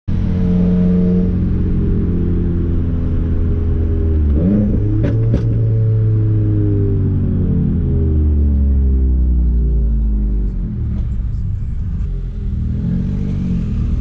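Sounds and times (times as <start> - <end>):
car engine cruising: 0.1 - 14.0.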